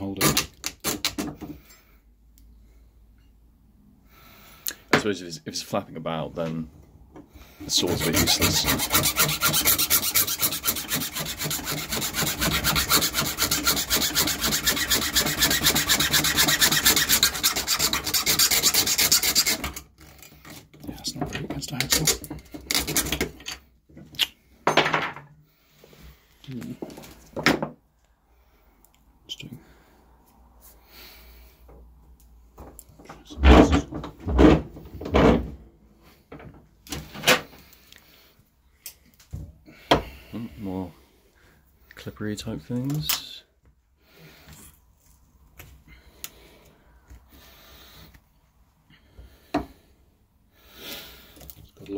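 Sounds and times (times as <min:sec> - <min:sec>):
hacksaw sawing steel: 0:07.7 - 0:20.6, 0:21.8 - 0:23.2.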